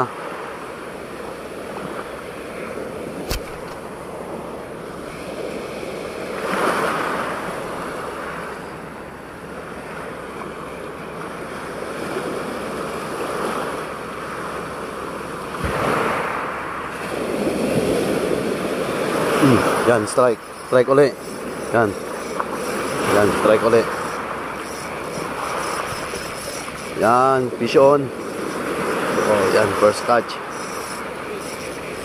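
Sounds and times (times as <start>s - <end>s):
ocean surf washing: 0.0s - 32.0s
sharp click: 3.2s - 3.8s.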